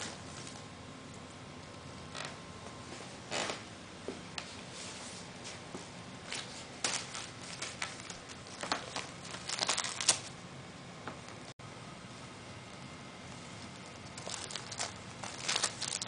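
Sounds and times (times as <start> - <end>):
wrapping paper crinkling: 6.4 - 10.4, 13.8 - 16.0.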